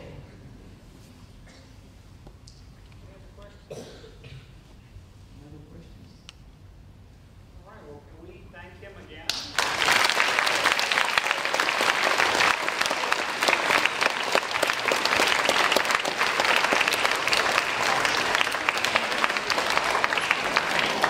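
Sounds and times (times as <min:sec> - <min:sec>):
audience applauding: 0:09.3 - 0:21.0.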